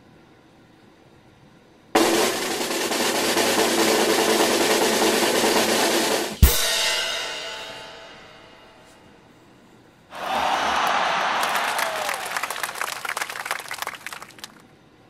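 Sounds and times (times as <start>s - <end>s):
snare drum roll: 2.0s - 6.6s
bass drum and cymbal crash: 6.2s - 8.6s.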